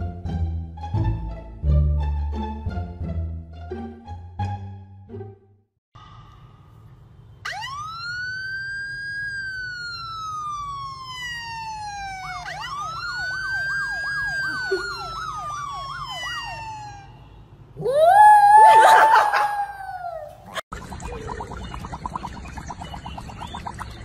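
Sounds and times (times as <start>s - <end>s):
police siren wailing and yelping: 7.4s - 20.6s.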